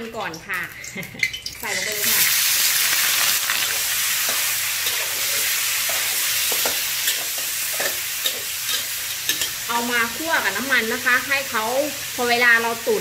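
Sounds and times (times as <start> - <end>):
meat sizzling in hot oil: 0.0 - 13.0
metal spatula scraping a wok: 4.0 - 9.7.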